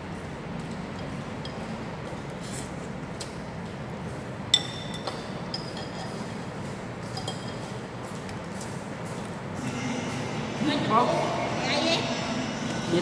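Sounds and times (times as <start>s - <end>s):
room noise: 0.0s - 13.0s
utensils clinking on ceramic bowl: 4.5s - 6.4s, 7.0s - 7.8s.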